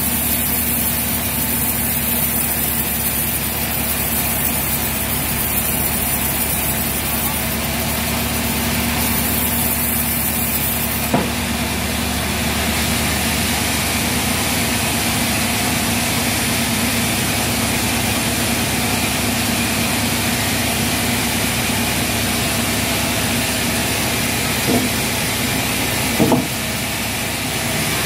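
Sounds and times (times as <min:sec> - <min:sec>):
low motor hum: 0:00.0 - 0:14.5, 0:22.4 - 0:28.0
band saw cutting log: 0:00.0 - 0:16.0, 0:21.2 - 0:28.0
short knock: 0:11.1 - 0:11.4, 0:24.7 - 0:25.0, 0:26.2 - 0:26.6.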